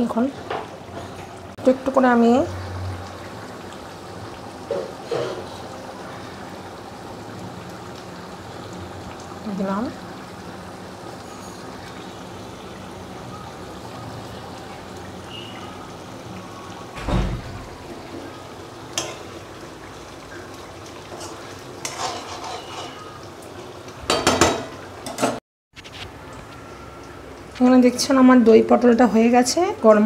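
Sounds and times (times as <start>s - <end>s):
batter sizzling in hot oil: 0.0s - 30.0s
metal utensils knocking pots: 24.1s - 25.4s.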